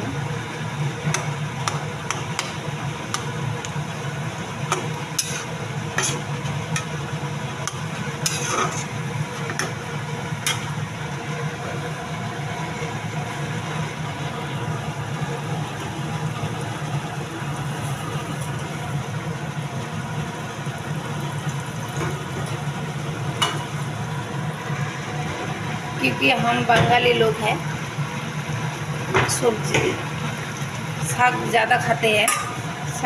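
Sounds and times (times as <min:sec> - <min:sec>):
steady low hum: 0:00.0 - 0:33.0
spatula scraping pan: 0:04.8 - 0:06.9, 0:07.7 - 0:09.7.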